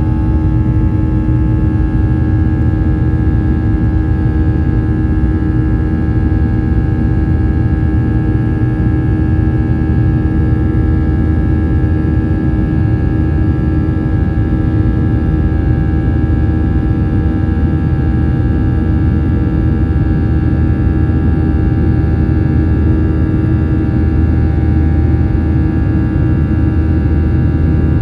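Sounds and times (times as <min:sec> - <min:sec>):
jet engines rumbling and whining: 0:00.0 - 0:28.0.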